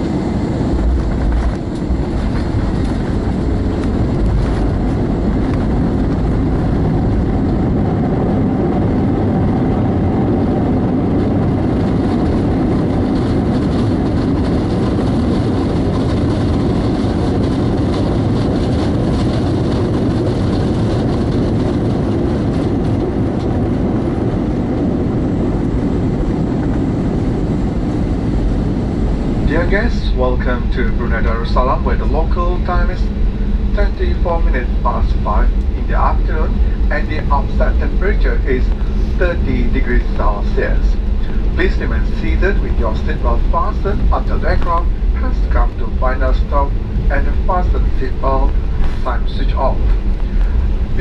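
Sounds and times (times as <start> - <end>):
aircraft cabin engine rumble: 0.0 - 51.0.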